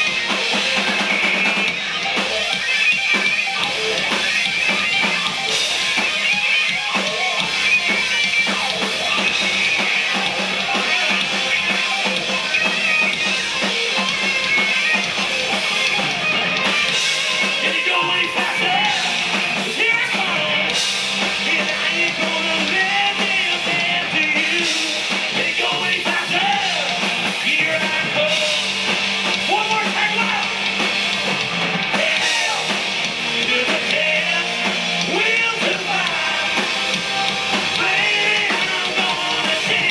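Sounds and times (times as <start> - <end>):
drums: 0.0 - 39.9
electric guitars: 0.0 - 39.9
man singing into a microphone: 17.6 - 20.8, 21.5 - 28.6, 33.4 - 36.7, 37.8 - 39.9.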